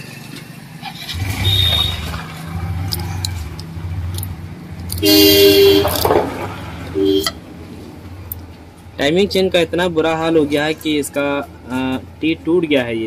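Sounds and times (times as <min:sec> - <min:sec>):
vehicle engine running: 0:00.0 - 0:12.4
vehicle horn honking: 0:01.2 - 0:02.2, 0:05.0 - 0:06.1, 0:06.9 - 0:07.4.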